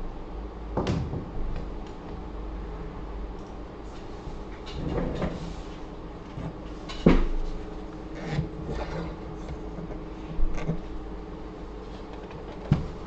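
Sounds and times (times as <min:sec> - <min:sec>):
faint hum: 0:00.0 - 0:13.0
rubbing or scraping: 0:08.1 - 0:10.0.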